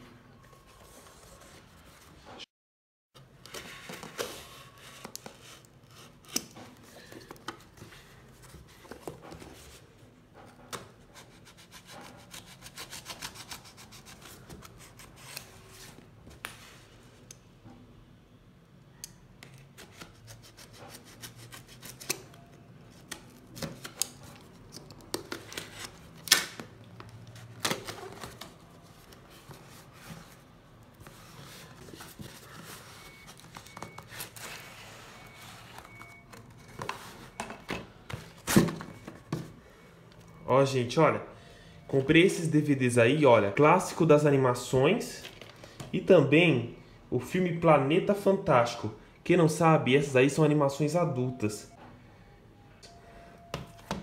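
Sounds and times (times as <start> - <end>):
cardboard rustling: 27.2 - 37.4.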